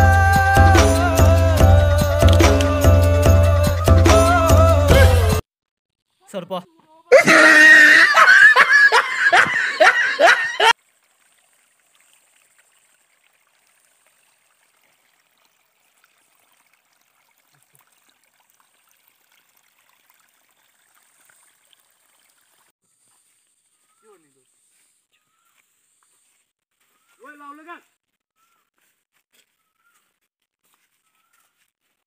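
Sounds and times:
people laughing and shouting: 7.1s - 10.7s.

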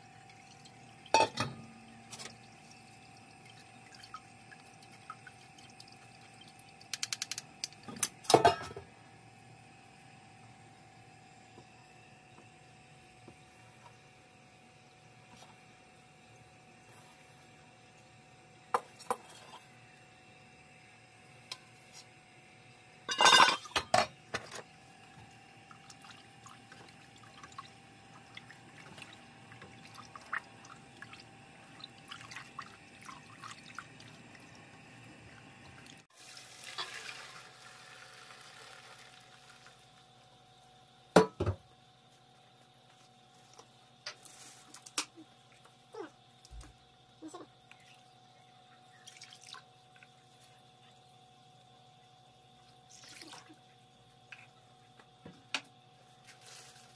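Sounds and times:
bowls clinking against metal: 1.2s - 1.6s, 23.1s - 24.1s.

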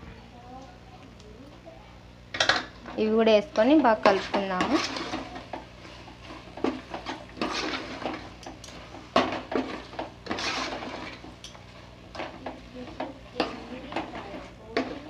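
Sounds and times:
metal ladle scraping a pot: 4.0s - 8.3s, 9.2s - 11.3s.

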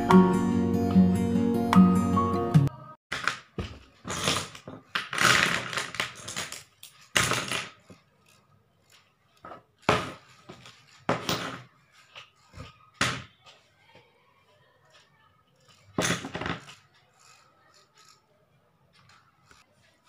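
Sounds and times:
art tools clattering on a board: 3.1s - 13.7s, 15.7s - 16.9s.

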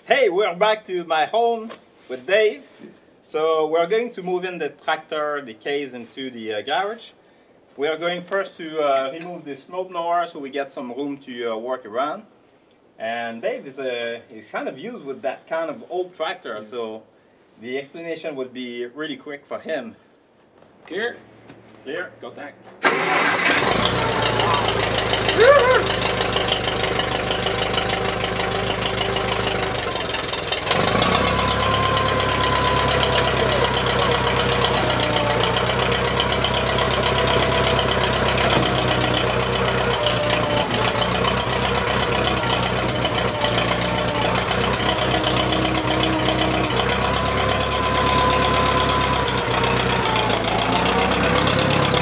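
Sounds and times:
tractor engine running: 22.8s - 52.0s.

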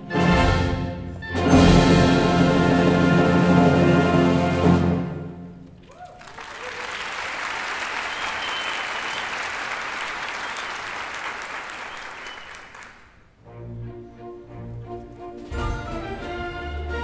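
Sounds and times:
audience applause: 5.8s - 13.2s.

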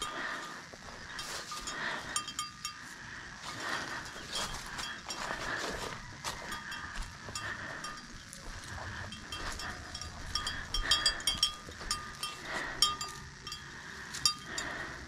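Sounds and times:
low steady hum: 0.0s - 15.0s
harness hardware jingling: 6.4s - 14.9s.

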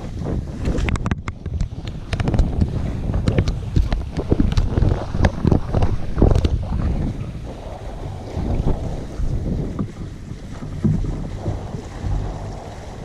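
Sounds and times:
wind buffeting microphone: 0.0s - 13.0s
sharp clicks and knocks: 0.6s - 6.6s.

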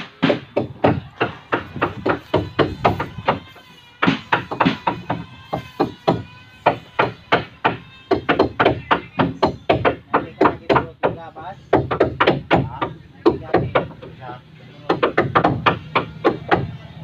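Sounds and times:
tool blows on timber: 0.0s - 10.9s.

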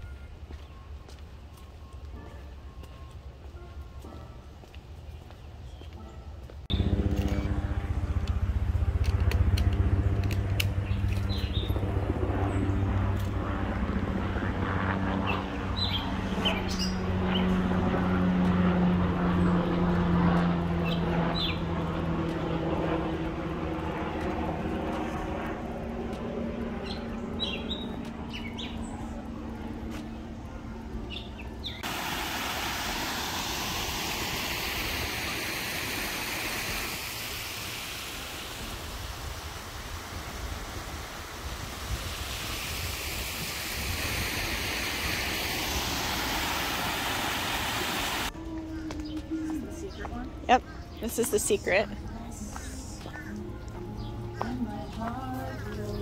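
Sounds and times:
low engine hum: 6.5s - 56.0s
birds chirping: 10.0s - 13.0s, 15.1s - 17.7s, 26.3s - 31.9s, 43.8s - 56.0s
even rushing noise: 31.8s - 48.3s.

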